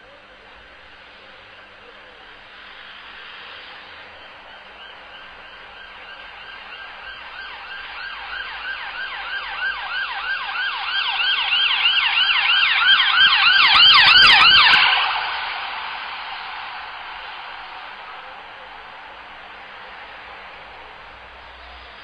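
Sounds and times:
vehicle rumble: 0.0 - 22.0
ambulance siren yelping: 4.6 - 18.8.

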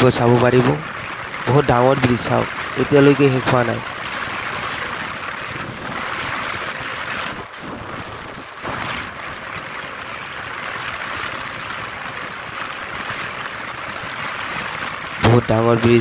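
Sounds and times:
motorcycle engine and tyre noise: 0.0 - 16.0
wind rushing over microphone: 0.0 - 16.0.

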